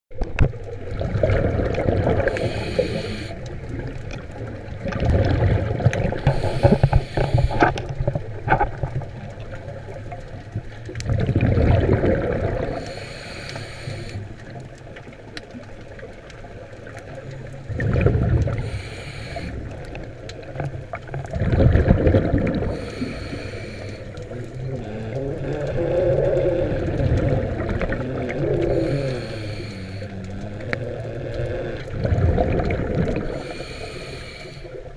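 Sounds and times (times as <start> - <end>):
underwater water rush: 0.1 - 34.9
hissing bursts: 2.4 - 3.4, 12.8 - 14.2.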